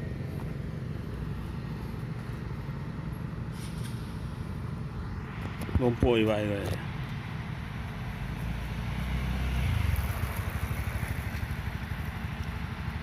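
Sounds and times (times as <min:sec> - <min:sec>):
motorcycle engine running: 0:09.4 - 0:13.0.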